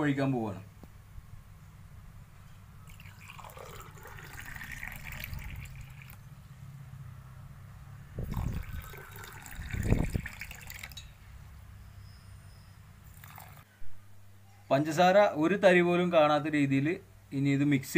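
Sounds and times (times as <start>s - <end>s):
water pouring into glasses: 2.9s - 6.2s, 8.2s - 11.1s, 13.1s - 13.7s.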